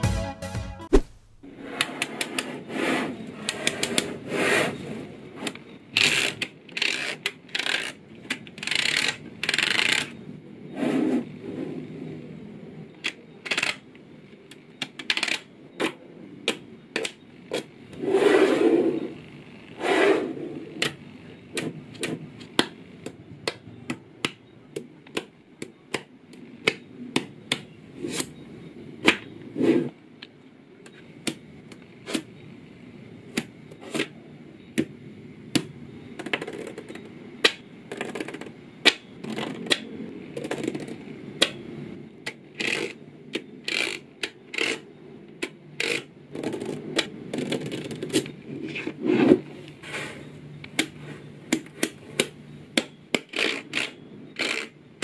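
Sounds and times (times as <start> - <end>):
plastic card scraping balls: 0.9 - 4.8, 19.8 - 28.4, 34.8 - 41.6, 45.8 - 54.8.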